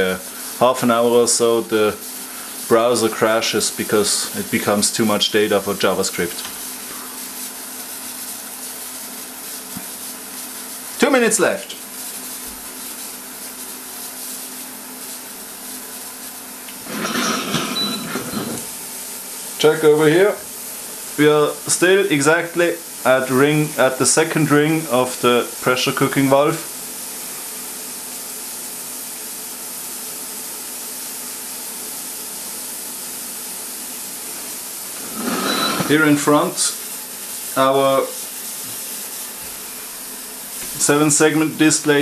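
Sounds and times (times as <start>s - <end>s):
pressure cooker hissing: 0.0s - 42.0s.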